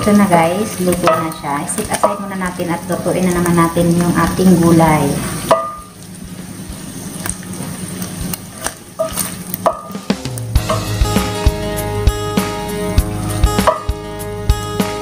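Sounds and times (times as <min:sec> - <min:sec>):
food sizzling in pan: 0:00.0 - 0:15.0
spatula scraping pan: 0:07.6 - 0:10.9
background music: 0:09.7 - 0:15.0.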